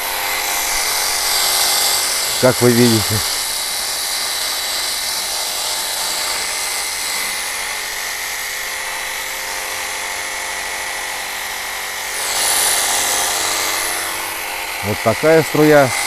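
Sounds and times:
water jet hissing: 0.0s - 7.4s, 12.1s - 16.0s
electric pump motor whine: 0.0s - 16.0s.

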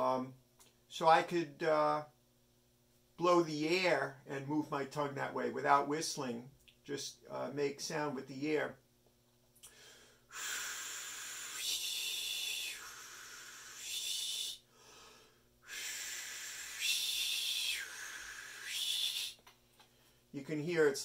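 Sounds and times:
man blowing breathy hisses: 9.6s - 19.4s.

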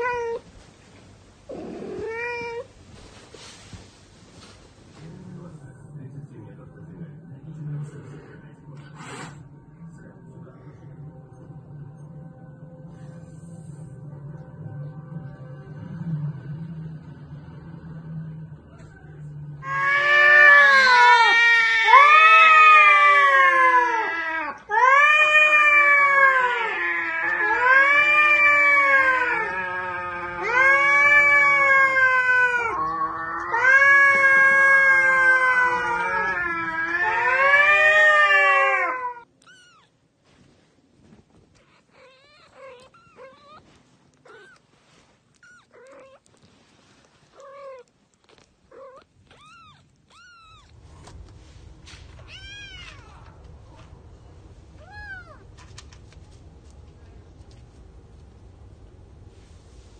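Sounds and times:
cat yowling: 0.0s - 0.4s, 1.5s - 2.7s, 19.6s - 39.9s, 41.6s - 44.6s, 45.4s - 46.3s, 47.3s - 50.7s, 52.2s - 53.8s, 54.7s - 55.6s.

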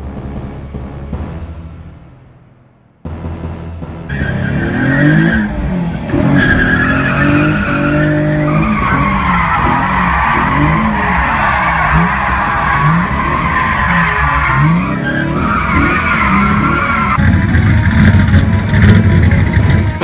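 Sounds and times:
sports car engine revving: 3.0s - 20.0s
tyres squealing: 4.1s - 20.0s.

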